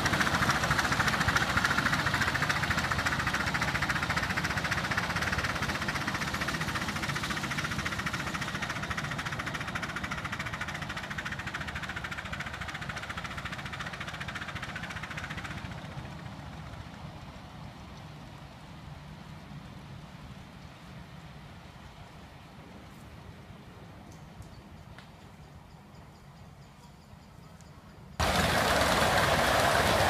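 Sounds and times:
steam locomotive chuffing: 0:00.0 - 0:17.4, 0:28.2 - 0:30.0.

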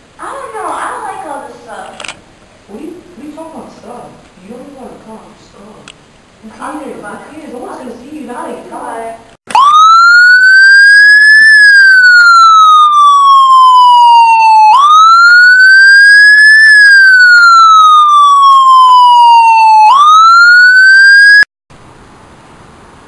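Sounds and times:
emergency siren wailing: 0:09.5 - 0:21.5.

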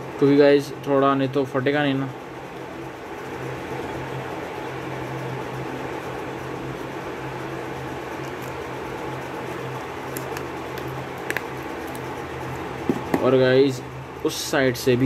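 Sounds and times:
room fan whirring: 0:00.0 - 0:15.0
packing tape crackling: 0:10.0 - 0:12.2.

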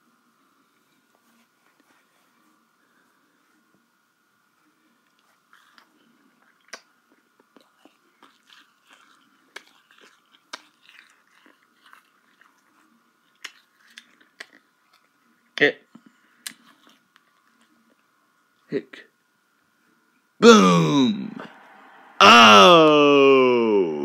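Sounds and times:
faint high whine: 0:17.8 - 0:24.0.

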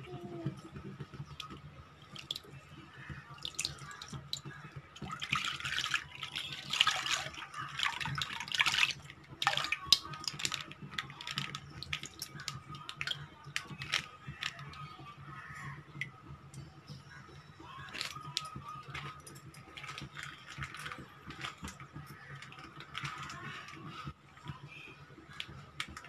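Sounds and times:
drips and small splashes: 0:00.1 - 0:26.0
milk splashing into metal pan: 0:01.4 - 0:14.9.

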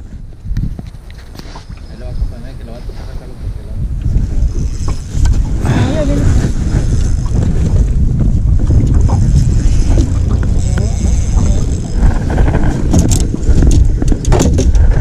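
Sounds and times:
wind buffeting microphone: 0:00.0 - 0:15.0
sharp clicks and knocks: 0:12.8 - 0:14.9.

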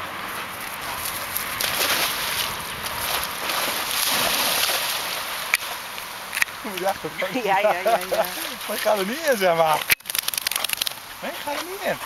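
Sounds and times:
dog splashing in water: 0:01.4 - 0:07.1.

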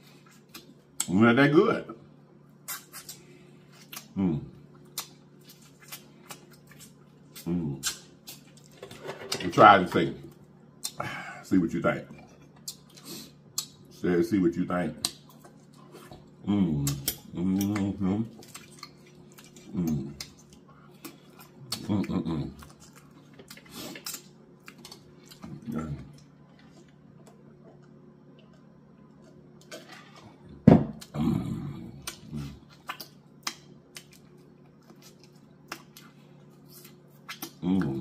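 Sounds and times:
lip smacking and chewing: 0:02.6 - 0:08.7, 0:10.3 - 0:11.0, 0:12.2 - 0:13.9, 0:15.0 - 0:29.9, 0:32.0 - 0:37.9
person humming and grunting: 0:16.4 - 0:18.3, 0:31.0 - 0:32.6, 0:37.6 - 0:38.0.

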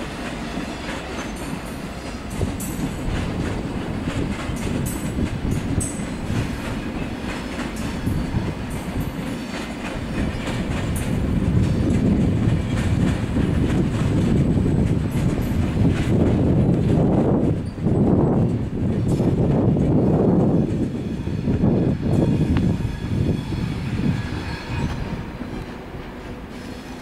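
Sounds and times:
train wheels rumbling on rails: 0:00.0 - 0:27.0
clacks over rail joints: 0:00.2 - 0:17.8.

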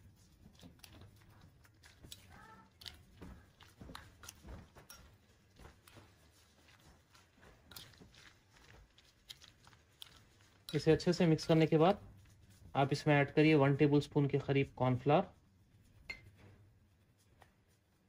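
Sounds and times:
wet squelching of raw chicken: 0:00.0 - 0:13.7.

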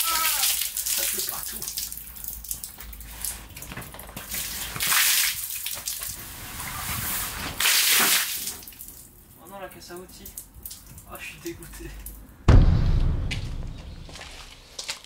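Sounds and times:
water gushing: 0:00.0 - 0:03.3
water dripping: 0:00.0 - 0:04.2, 0:08.4 - 0:12.3
water pouring and splashing on ground: 0:00.0 - 0:12.3.

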